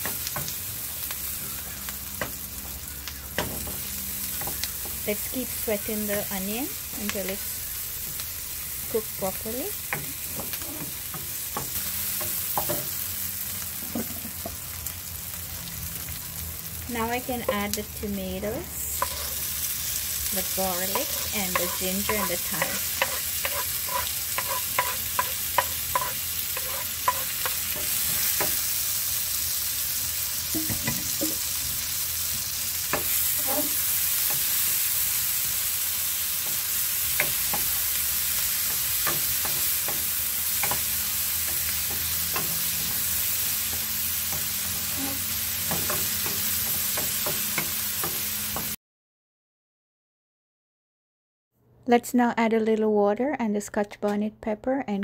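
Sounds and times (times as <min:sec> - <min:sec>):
vegetables sizzling in hot oil: 0:00.0 - 0:48.8
wooden spatula scraping a pan: 0:18.8 - 0:19.5, 0:20.8 - 0:28.3.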